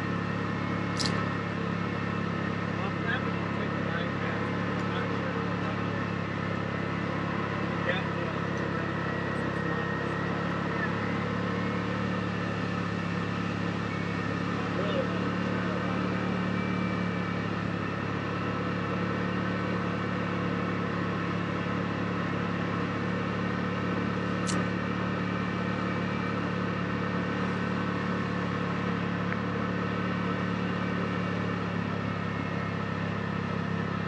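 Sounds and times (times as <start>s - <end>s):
vehicle engine running steadily: 0.0s - 34.0s
sharp click: 1.0s - 1.2s, 24.4s - 24.7s.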